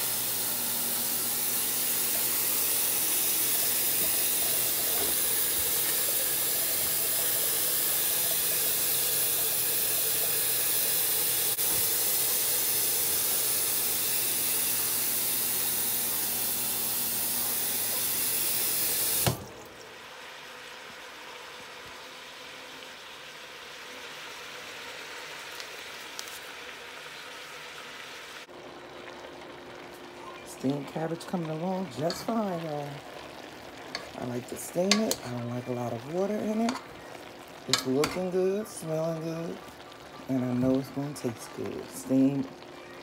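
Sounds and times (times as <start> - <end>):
tap water running into sink: 0.0 - 19.8, 33.8 - 35.4.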